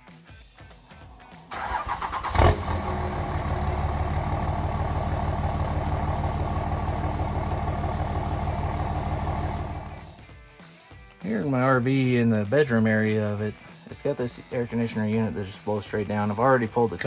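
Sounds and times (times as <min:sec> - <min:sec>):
engine idling: 0:01.5 - 0:10.2
pickup truck engine starting: 0:01.5 - 0:10.2.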